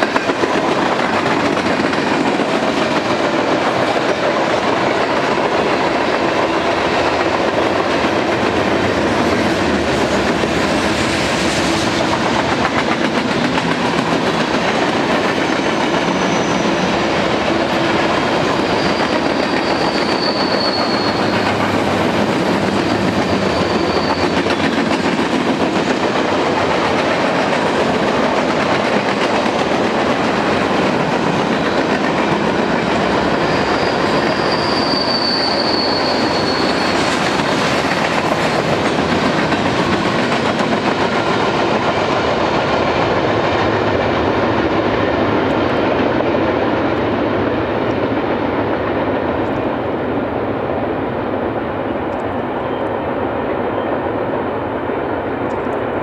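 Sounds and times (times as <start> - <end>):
freight train cars rolling: 0.0 - 50.2
high wheel squeals: 15.4 - 16.9, 18.6 - 21.8, 23.2 - 24.7, 33.4 - 37.2.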